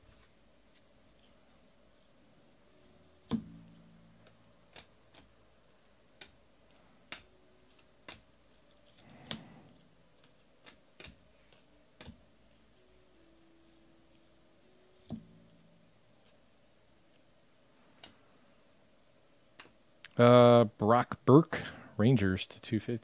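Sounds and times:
cards clicking when flipped: 0:03.3 - 0:05.4, 0:06.2 - 0:12.2, 0:19.5 - 0:20.1
cards rustling shuffle: 0:04.2 - 0:05.4, 0:06.1 - 0:12.6.

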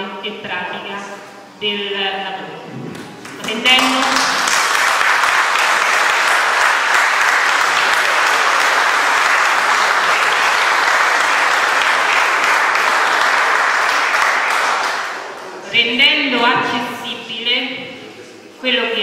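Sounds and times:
audience applauding: 0:02.9 - 0:15.7.

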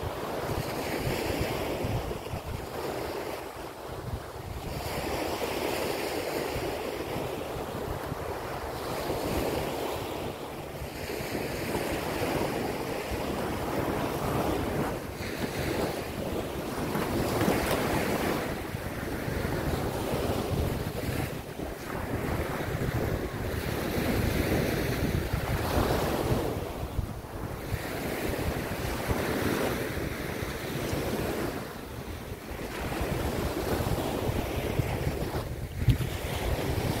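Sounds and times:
small waves washing on sand: 0:00.0 - 0:37.0
wind buffeting microphone: 0:00.0 - 0:37.0.

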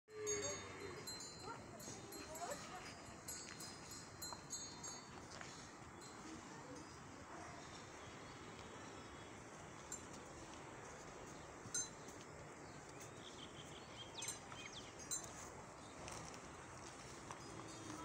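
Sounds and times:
small bells tinkling: 0:00.1 - 0:07.2, 0:11.6 - 0:12.3, 0:14.2 - 0:15.6.

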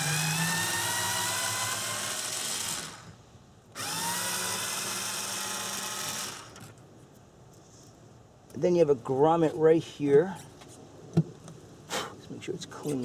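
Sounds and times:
electric screwdriver whine: 0:00.0 - 0:03.2, 0:03.8 - 0:06.7.

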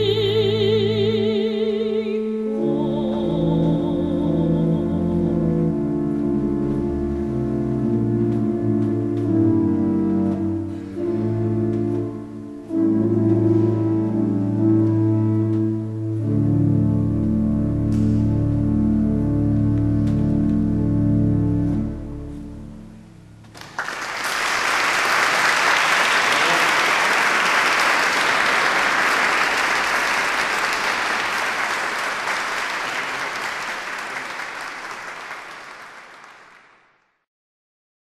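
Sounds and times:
pipe organ chord: 0:00.0 - 0:23.5
audience applause: 0:23.5 - 0:37.0.

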